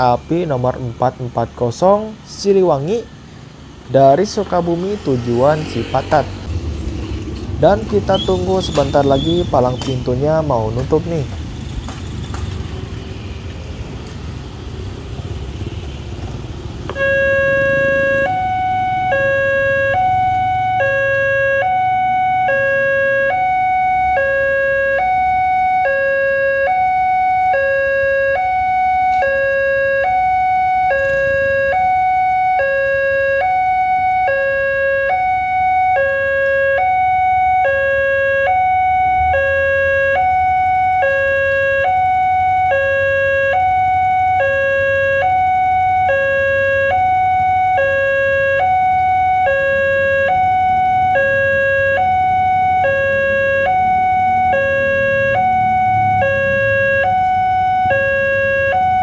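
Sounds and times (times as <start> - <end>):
low rumble of road traffic: 0.0 - 59.0
level crossing warning bell: 16.9 - 59.0.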